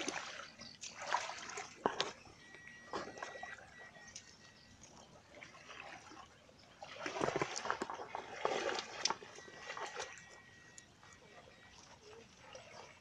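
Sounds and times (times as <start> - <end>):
splashing steps: 0.0 - 6.0, 7.0 - 10.9
wading through muddy water: 0.0 - 13.0.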